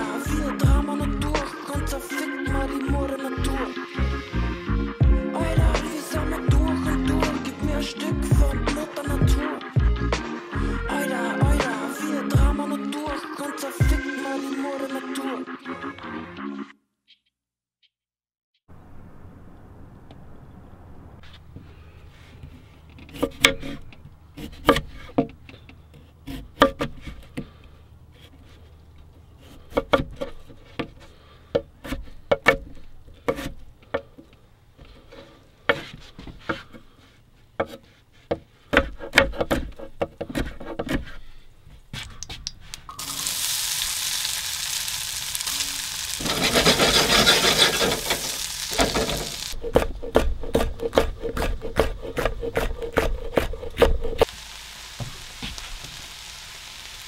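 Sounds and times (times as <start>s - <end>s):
food sizzling in hot pan: 42.9s - 49.6s, 54.2s - 57.0s
utensils knocking and scraping: 46.2s - 49.8s.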